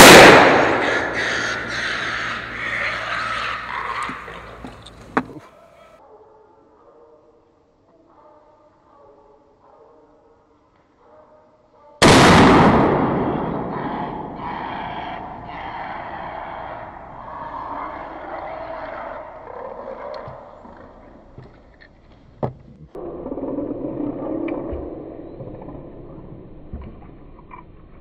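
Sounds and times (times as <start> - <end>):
gunshots echoing: 0.0 - 1.9, 12.0 - 16.0.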